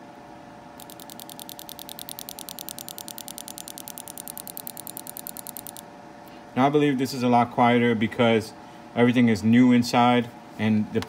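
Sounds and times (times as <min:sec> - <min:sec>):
fuel injector clicking: 0:00.8 - 0:05.8.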